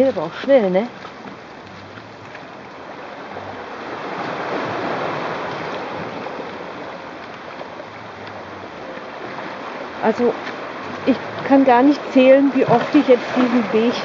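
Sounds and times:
sea waves washing against rocks: 0.0s - 14.0s.

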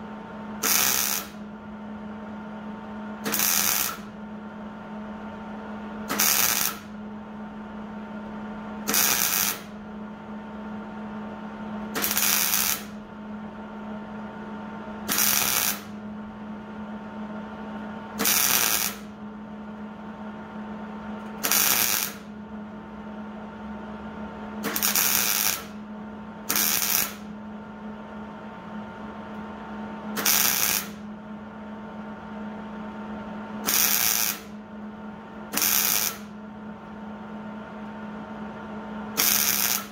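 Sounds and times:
steady low hum: 0.0s - 39.9s
welder tack welding bursts: 0.6s - 1.4s, 3.2s - 4.1s, 6.1s - 6.9s, 8.9s - 9.7s, 12.0s - 13.0s, 15.1s - 16.0s, 18.2s - 19.1s, 21.4s - 22.2s, 24.6s - 25.8s, 26.5s - 27.3s, 30.2s - 31.0s, 33.6s - 34.5s, 35.6s - 36.3s, 39.2s - 39.9s.

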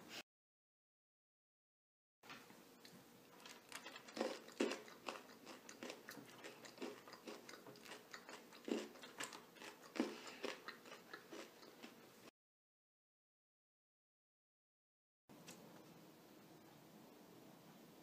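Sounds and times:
person crunching and chewing food: 3.3s - 12.3s.

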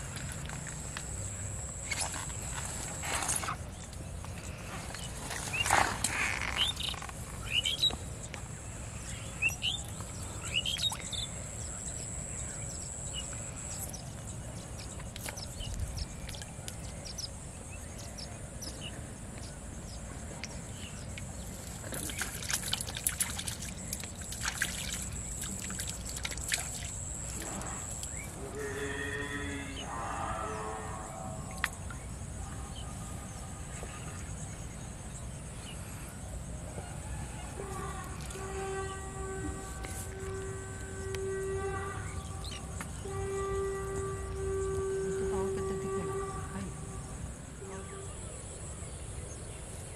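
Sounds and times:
small water sounds: 0.0s - 28.9s
small birds chirping: 9.0s - 29.8s.

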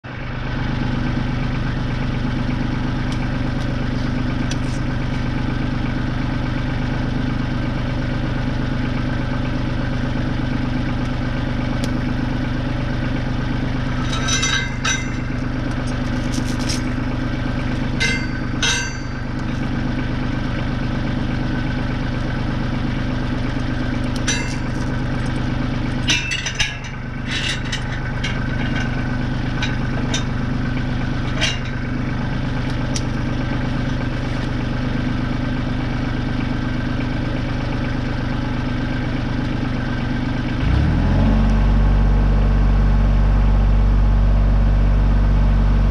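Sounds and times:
tractor engine idling: 0.0s - 45.9s
chain clinking and rattling: 13.8s - 17.0s, 17.7s - 19.3s, 24.3s - 30.4s.

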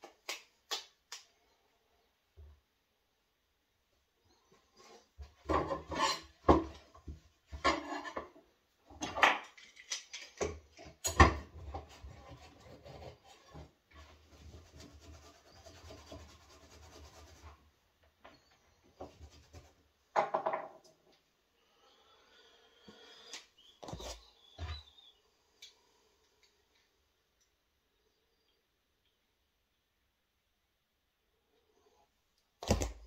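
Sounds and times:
clamp handle rubbing and scraping: 5.6s - 6.4s.

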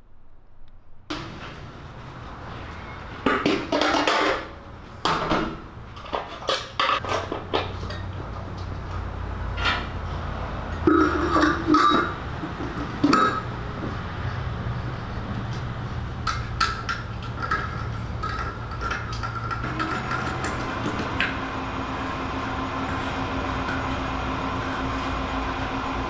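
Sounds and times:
metal lid clanking on housing: 10.8s - 13.5s.

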